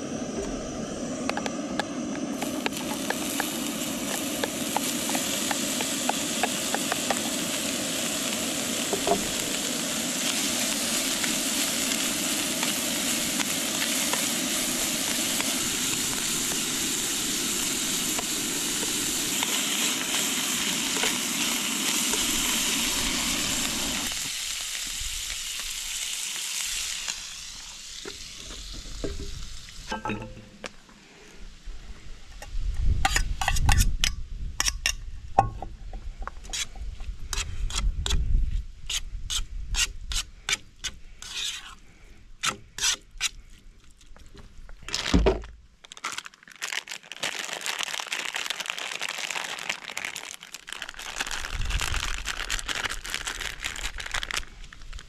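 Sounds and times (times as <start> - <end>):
food sizzling in a frying pan: 2.4 - 30.4.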